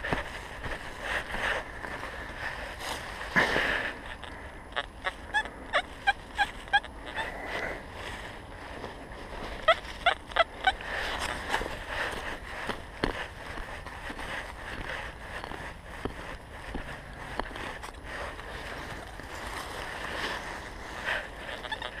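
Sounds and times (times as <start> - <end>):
rustling in dry leaves: 0.0 - 22.0
metal detector beeps: 4.2 - 7.4, 9.6 - 11.4.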